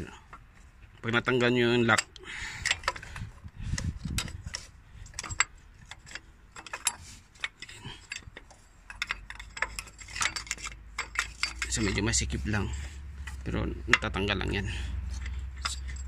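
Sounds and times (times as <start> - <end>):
metallic clicks of hand tools: 1.9 - 12.6.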